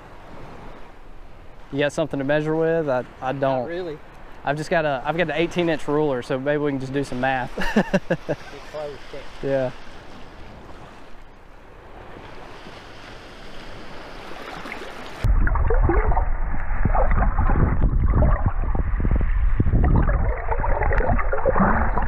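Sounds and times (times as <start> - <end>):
gentle wind: 0.0 - 22.0
shallow surf water: 0.0 - 22.0
muffled underwater sloshing: 13.7 - 22.0.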